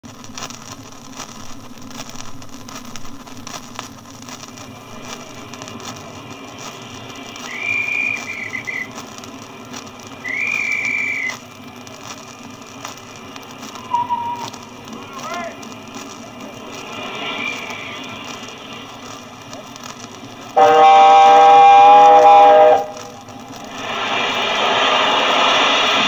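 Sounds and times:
record surface hiss and crackle: 0.0 - 26.0
locomotive whistle blasts: 7.4 - 9.0, 10.2 - 11.4, 13.8 - 14.6, 20.6 - 23.2.

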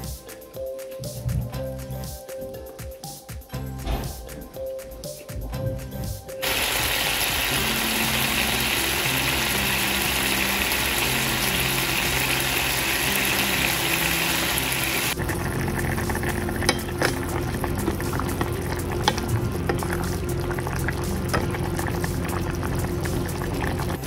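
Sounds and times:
pork sizzling in frying pan: 6.4 - 24.0
liquid bubbling in pot: 15.1 - 24.0.

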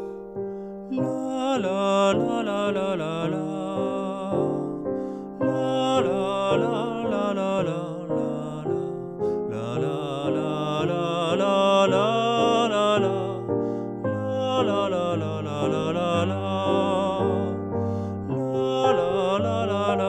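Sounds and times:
piano accompaniment: 0.0 - 20.0
person singing la la la: 0.9 - 20.0.

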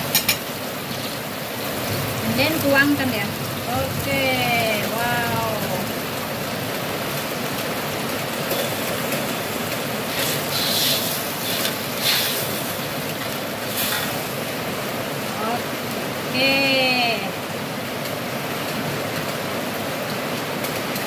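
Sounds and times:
food sizzling in hot oil: 0.0 - 5.9, 7.0 - 15.6
metal ladle scraping wok: 10.1 - 12.7.

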